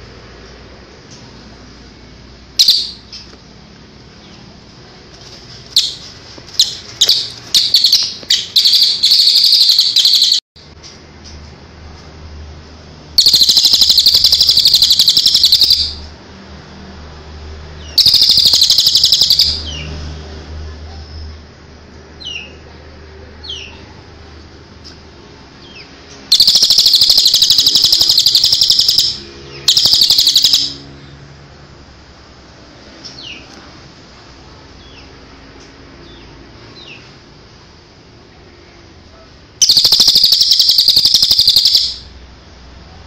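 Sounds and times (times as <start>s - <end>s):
bird rattling call: 5.8s - 10.4s, 13.2s - 16.0s, 18.0s - 19.6s, 26.3s - 30.8s, 39.6s - 42.0s.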